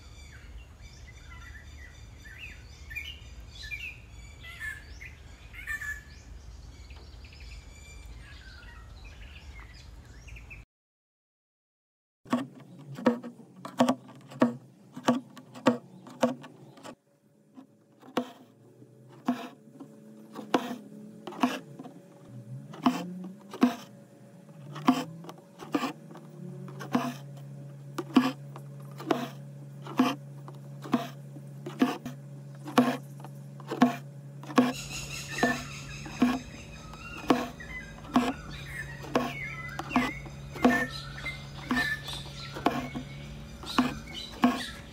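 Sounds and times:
thread rasping: 12.3 - 17.0, 17.6 - 23.9, 24.5 - 44.9.

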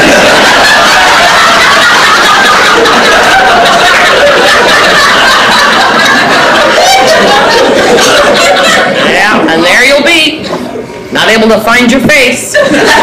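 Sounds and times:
audience laughing: 0.0 - 9.5, 12.4 - 13.0.

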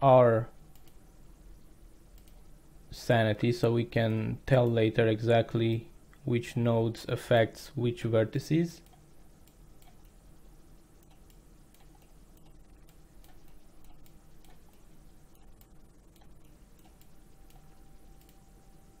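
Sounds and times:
low steady hum: 0.0 - 19.0
computer mouse clicks: 0.7 - 1.0, 2.1 - 2.5, 8.8 - 10.2, 11.0 - 18.5.

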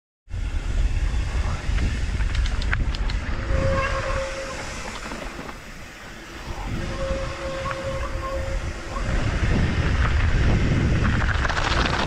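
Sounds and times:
bike tyres and wind rumble: 0.3 - 12.0
steady whine: 0.3 - 12.0
bike clicks and rattles: 1.6 - 3.4, 9.3 - 12.0.

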